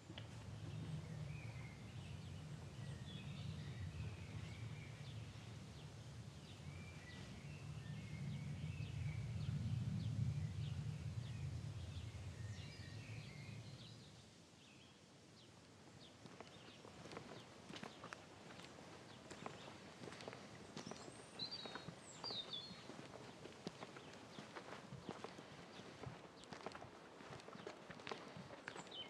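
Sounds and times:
small birds chirping: 0.0 - 29.0
low rumble: 0.2 - 14.2
footsteps: 16.2 - 29.0.

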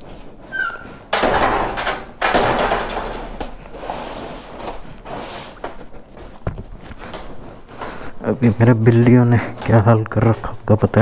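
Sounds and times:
metal gate squeaking: 0.5 - 3.0
metal gate scraping and rattling: 0.8 - 4.4.

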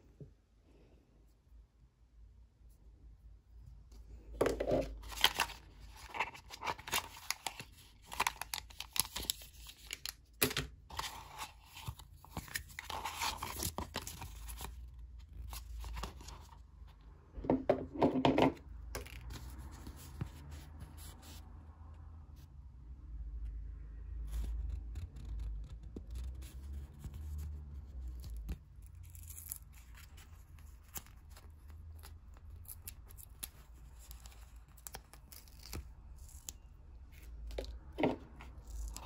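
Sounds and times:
plastic packaging crinkling and tearing: 4.8 - 16.5.

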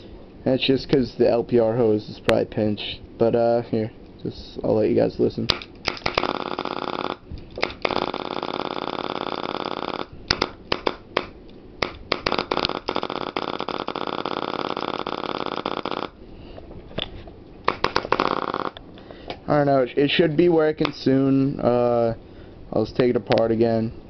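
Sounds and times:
sharp clicks: 5.5 - 16.2, 17.6 - 19.4
air sputtering through paintball gun: 5.9 - 16.2, 17.7 - 18.8.

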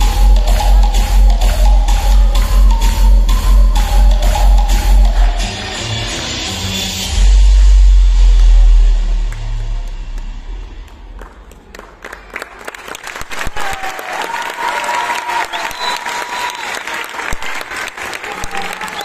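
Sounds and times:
music: 0.0 - 11.5
audience applauding: 9.8 - 19.0.

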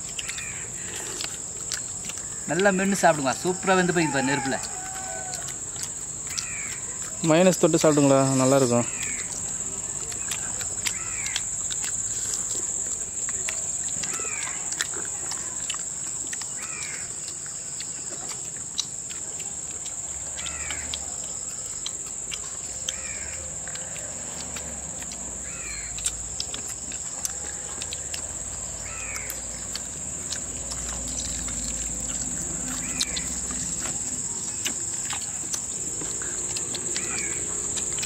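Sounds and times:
bird calling: 0.0 - 2.8, 4.1 - 7.2, 7.8 - 9.4, 10.0 - 11.5, 13.4 - 15.7, 16.4 - 17.4, 20.3 - 21.4, 22.3 - 38.0.

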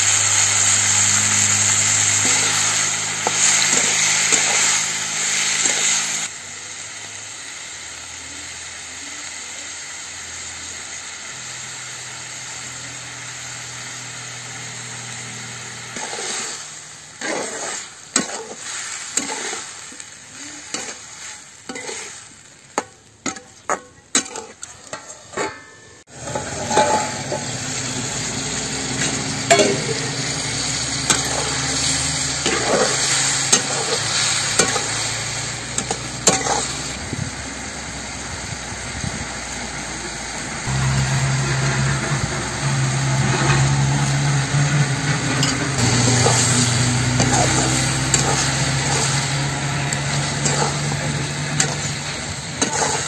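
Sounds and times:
food sizzling: 0.0 - 53.0
spatula scraping a metal pan: 0.1 - 6.3, 15.8 - 37.0, 44.6 - 53.0.

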